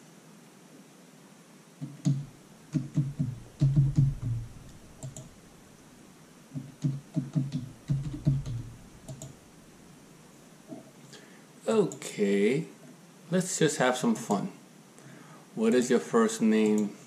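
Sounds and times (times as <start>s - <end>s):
keyboard typing: 1.8s - 5.4s, 6.6s - 9.4s.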